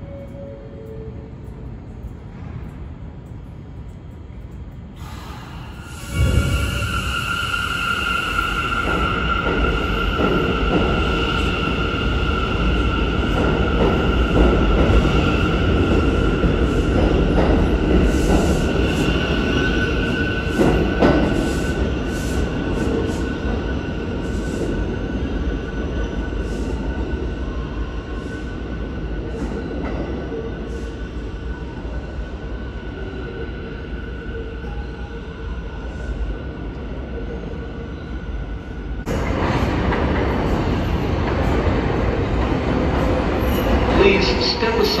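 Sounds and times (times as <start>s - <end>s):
subway train rumble and whine: 0.0s - 45.0s.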